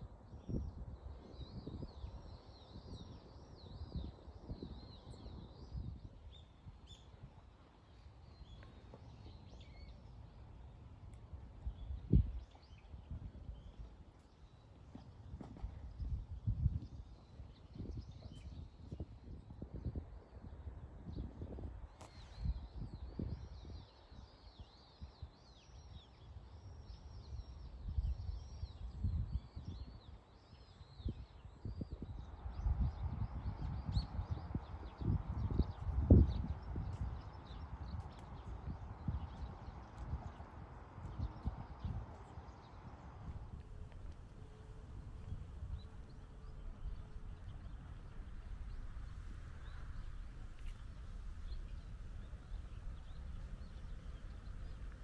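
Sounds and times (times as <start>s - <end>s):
small birds chirping: 32.2s - 55.0s
low rumble: 43.2s - 55.0s.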